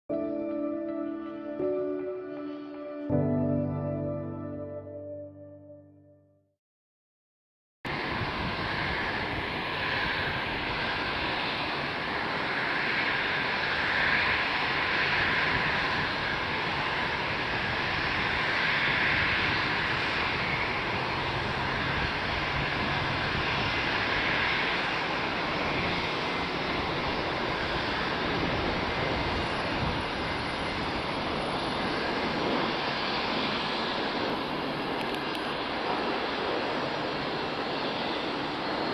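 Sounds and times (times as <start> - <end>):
jet engines roaring: 7.9 - 38.9.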